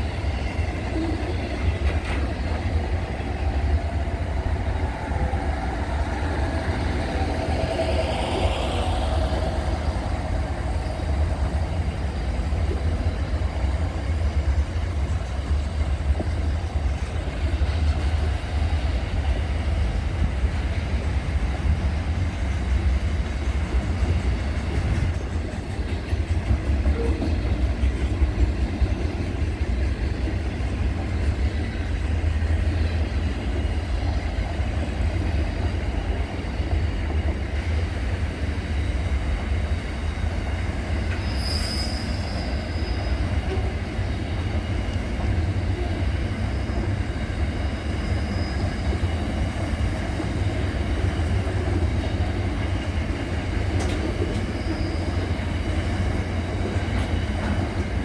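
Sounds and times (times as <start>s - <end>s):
freight train rolling past: 0.0s - 58.0s
high wheel squeal: 41.0s - 43.8s, 45.6s - 49.6s, 54.2s - 56.3s.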